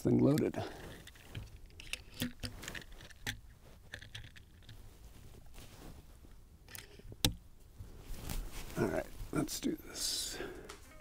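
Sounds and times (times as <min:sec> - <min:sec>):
air rifle action clicks: 0:00.3 - 0:04.8.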